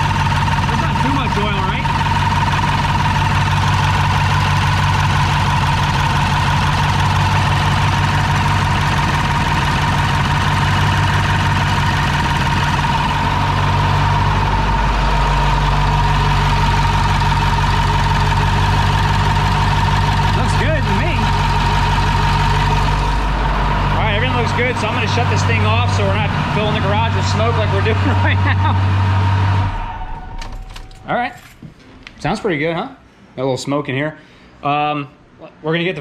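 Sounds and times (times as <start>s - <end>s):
diesel engine idling: 0.0s - 33.3s
steady high whine: 0.0s - 33.4s.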